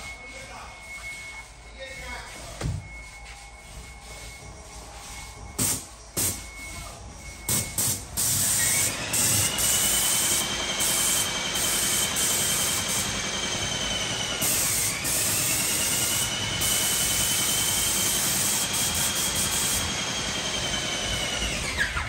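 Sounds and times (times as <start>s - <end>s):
paint sprayer pump whine: 4.9s - 22.0s.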